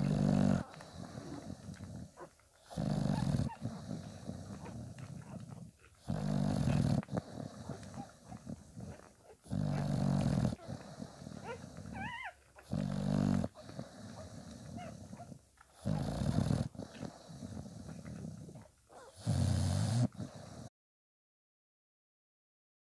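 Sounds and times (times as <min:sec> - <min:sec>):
dog snoring: 0:00.0 - 0:20.7
puppy squeaking: 0:11.4 - 0:12.4.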